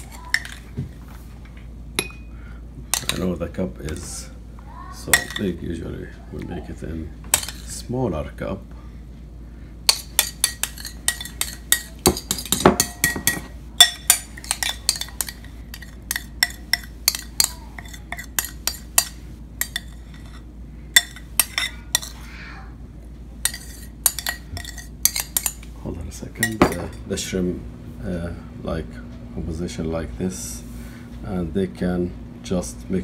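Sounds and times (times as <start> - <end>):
spoon clinking against bowl: 5.1 - 5.5, 9.9 - 20.4, 21.0 - 22.2, 23.4 - 25.6, 26.4 - 27.0.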